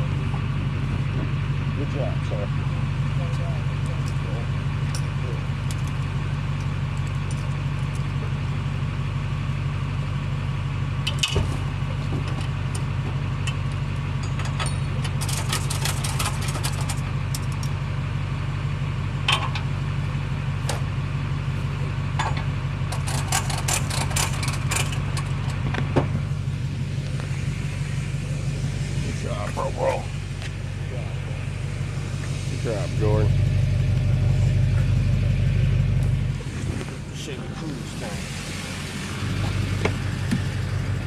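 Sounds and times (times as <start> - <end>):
truck engine idling: 0.0 - 41.0
metallic clicks and rattles: 14.2 - 17.7, 22.2 - 25.7.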